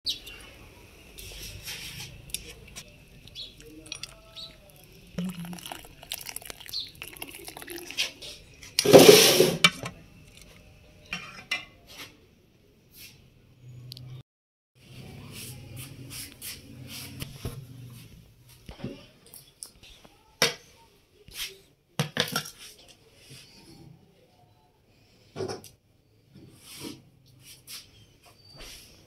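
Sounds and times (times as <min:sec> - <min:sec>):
steel pots and cups clinking: 0:03.4 - 0:11.8
tea pouring through strainer: 0:03.5 - 0:09.3.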